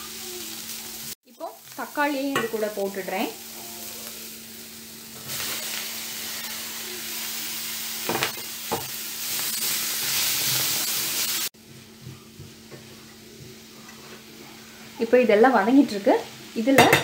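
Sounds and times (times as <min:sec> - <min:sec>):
food sizzling in a pan: 0:00.0 - 0:17.0.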